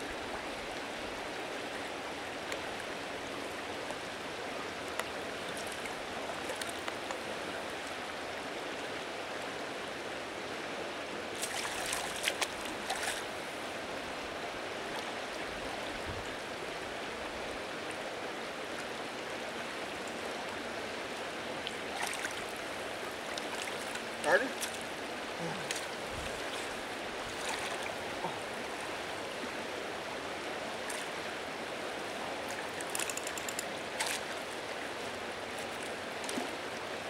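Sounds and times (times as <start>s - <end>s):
river current rushing: 0.0s - 37.0s
water splashes: 11.3s - 13.6s, 21.6s - 29.6s, 30.6s - 31.3s, 31.9s - 37.0s.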